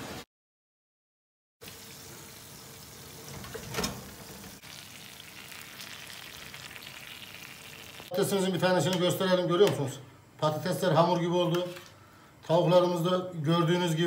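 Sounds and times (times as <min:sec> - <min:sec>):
food sizzling on baking tray: 0:01.6 - 0:08.2.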